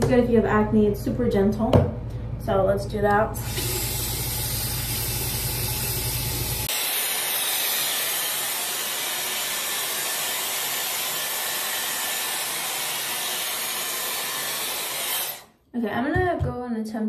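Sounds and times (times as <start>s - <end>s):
hair styler airflow hiss: 3.4s - 15.5s.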